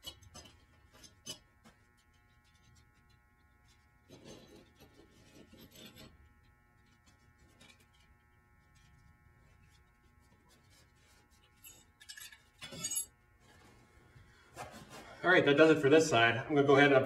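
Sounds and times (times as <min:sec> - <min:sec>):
faint steady hum: 0:00.0 - 0:17.0
metal scraping on metal: 0:04.1 - 0:13.6.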